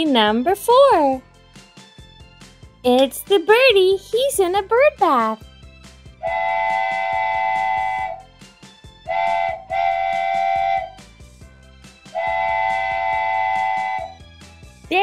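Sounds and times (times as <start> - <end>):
steam train whistle blasts: 6.2 - 8.3, 9.0 - 11.0, 12.1 - 14.2.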